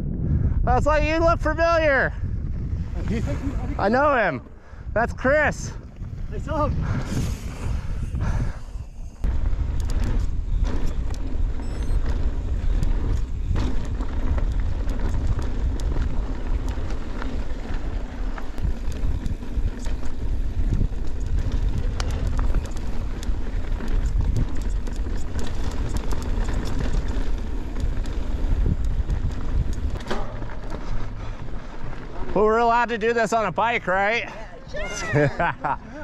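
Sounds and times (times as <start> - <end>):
wind buffeting microphone: 0.0 - 34.0
bike clicks and rattles: 5.7 - 32.6.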